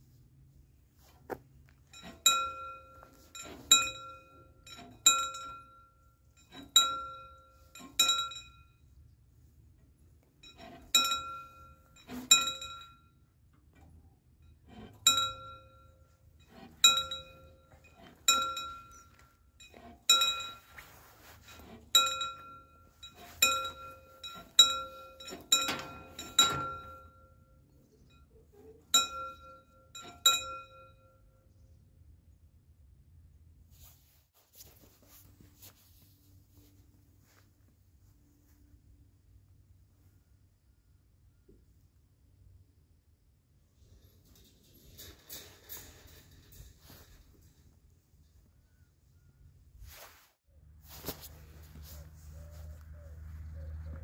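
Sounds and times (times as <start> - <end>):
railway crossing bell ringing: 1.9 - 9.0, 10.4 - 13.4, 14.4 - 31.4.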